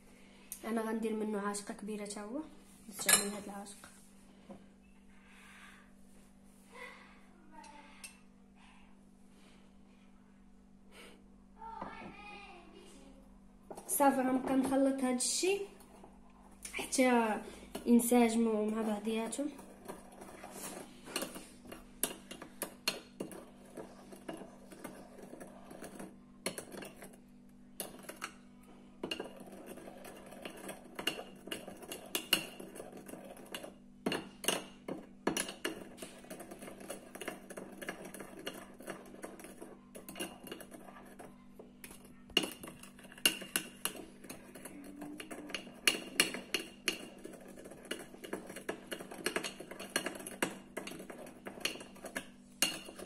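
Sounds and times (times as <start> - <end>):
spoon clinking and scraping bowl: 2.9 - 3.5, 16.9 - 53.0.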